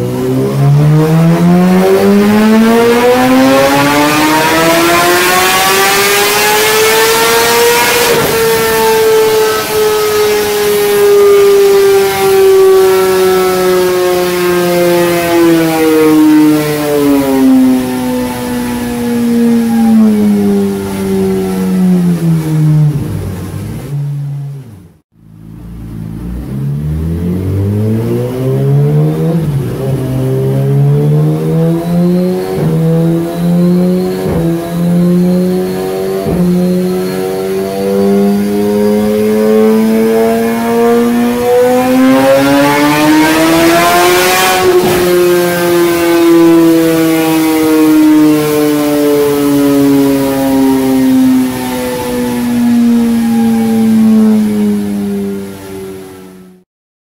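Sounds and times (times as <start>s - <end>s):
motorcycle engine revving: 0.0s - 56.6s.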